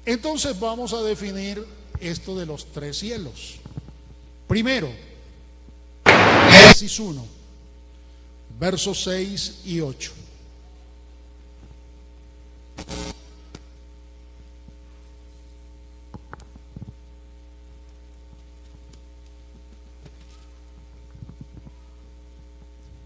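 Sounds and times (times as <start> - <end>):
low electrical hum: 0.0 - 23.0.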